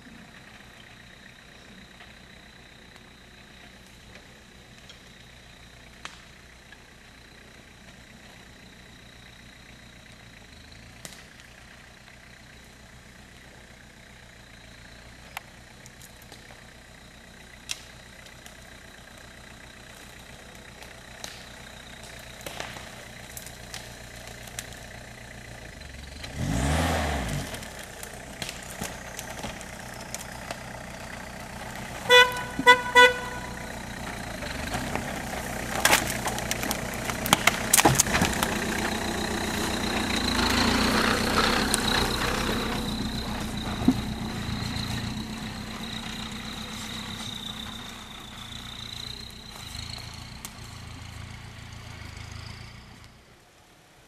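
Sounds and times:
off-road engines running: 0.0s - 54.0s
sharp cracks and knocks: 11.0s - 11.6s, 17.6s - 18.6s, 19.9s - 25.0s, 27.3s - 32.7s, 34.0s - 40.0s
car horn toots: 32.0s - 33.7s.

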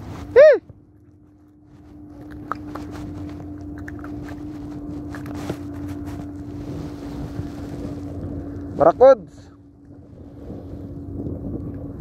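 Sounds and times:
low hum: 0.0s - 12.0s
footsteps crunching on stones: 1.7s - 8.2s.

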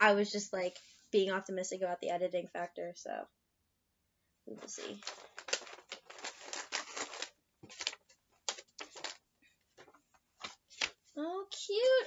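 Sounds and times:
snack packaging crinkling: 4.7s - 9.2s.

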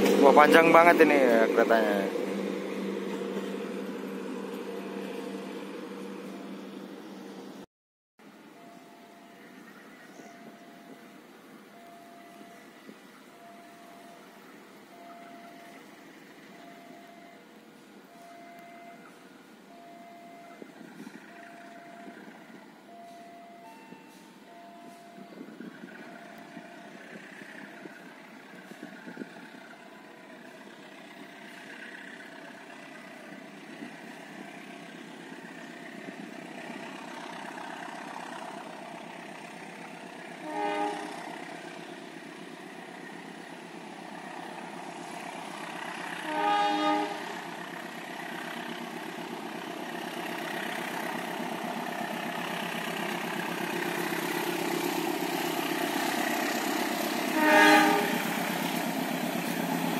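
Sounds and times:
train rumble: 0.0s - 7.6s, 8.2s - 59.9s
locomotive horn blasts: 40.3s - 41.4s, 46.1s - 47.4s, 57.3s - 58.8s.

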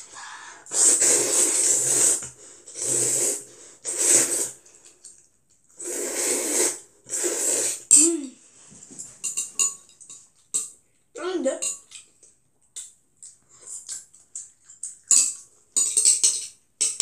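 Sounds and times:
child slurping noodles: 0.0s - 4.8s, 5.8s - 8.0s.

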